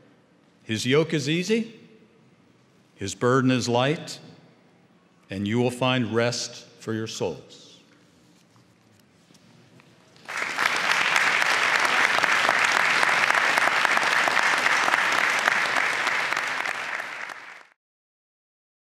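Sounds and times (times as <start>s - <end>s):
audience applauding: 10.2s - 17.8s.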